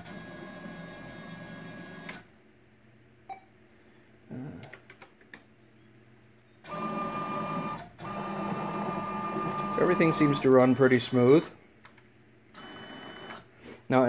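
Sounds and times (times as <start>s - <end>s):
lathe drive motors whining: 6.6s - 11.6s.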